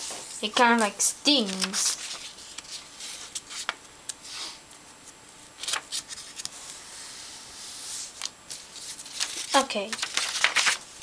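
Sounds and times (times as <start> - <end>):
paper rustling and crackling: 0.6 - 3.8, 5.6 - 6.8, 8.1 - 11.0.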